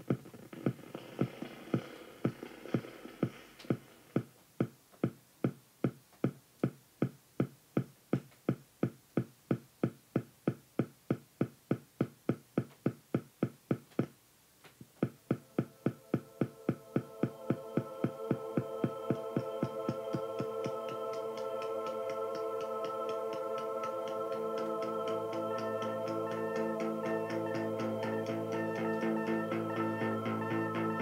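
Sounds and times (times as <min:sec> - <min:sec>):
faint hum: 0:00.0 - 0:31.0
sharp rhythmic clicks: 0:15.0 - 0:30.7.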